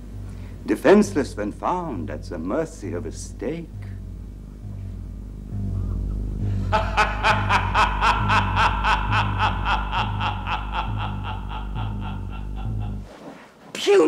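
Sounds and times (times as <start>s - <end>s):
low pulsing music drone: 0.0s - 13.1s
woman cackling laugh: 5.8s - 13.1s.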